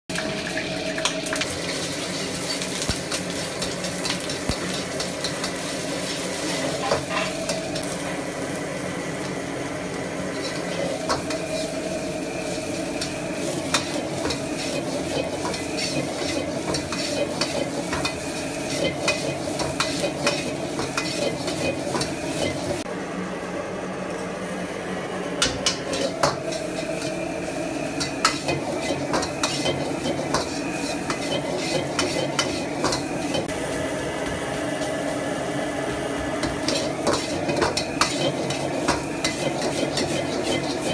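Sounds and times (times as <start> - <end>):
vegetables sizzling in a wok: 0.1 - 22.9, 23.8 - 40.9
metal ladle scraping and knocking wok: 6.6 - 7.6.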